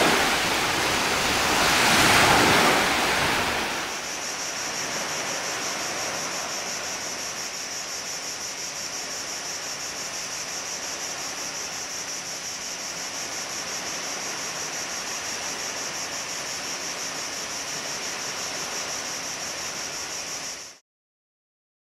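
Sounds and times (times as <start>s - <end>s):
surf washing onto beach: 0.0s - 8.3s.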